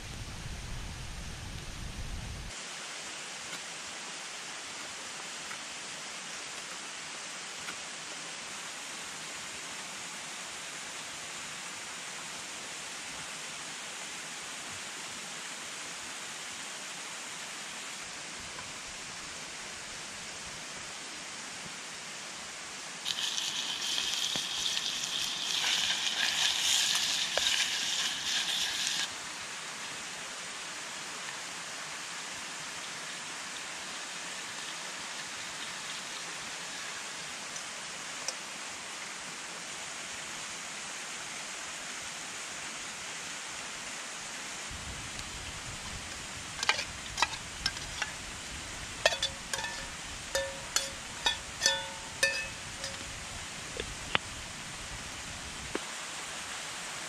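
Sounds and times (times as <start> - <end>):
campfire hissing and sizzling: 0.0 - 57.0
mountain stream rushing: 2.5 - 57.0
camping pots clinking: 23.1 - 29.1, 46.6 - 48.2, 49.0 - 53.2.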